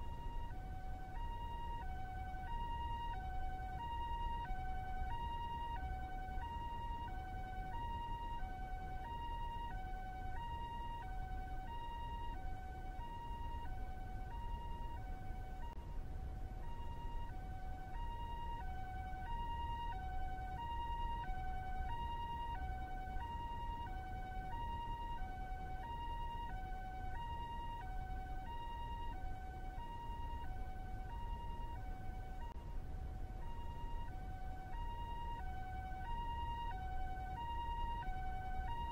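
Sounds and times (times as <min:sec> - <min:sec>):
low continuous rumble: 0:00.0 - 0:38.9
two-tone ambulance siren: 0:00.0 - 0:38.9.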